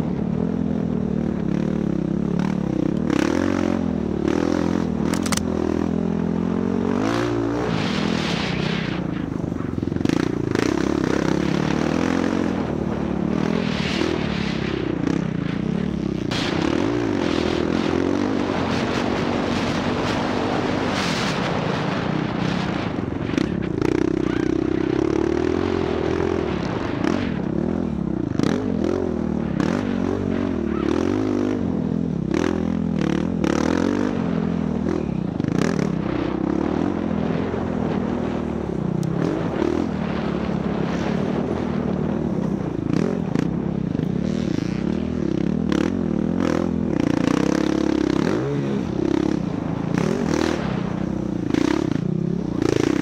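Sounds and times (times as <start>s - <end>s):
dirt bike engine revving: 0.0s - 53.0s
sharp clicks and knocks: 5.1s - 5.5s.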